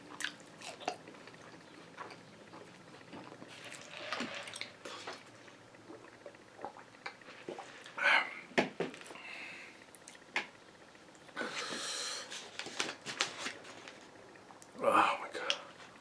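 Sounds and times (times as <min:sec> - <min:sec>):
soft chewing: 0:00.0 - 0:08.0
slurping through a straw: 0:03.2 - 0:05.3.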